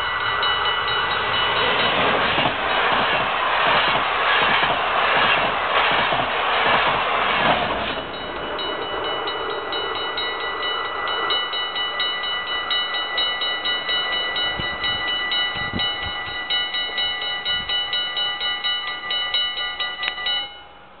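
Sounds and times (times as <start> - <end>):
train rushing past: 0.0 - 21.0
level crossing bell dinging: 8.1 - 20.8.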